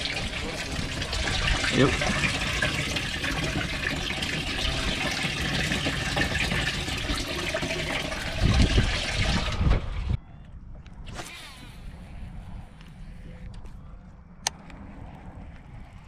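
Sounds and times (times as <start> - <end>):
water running and splashing: 0.0 - 9.8.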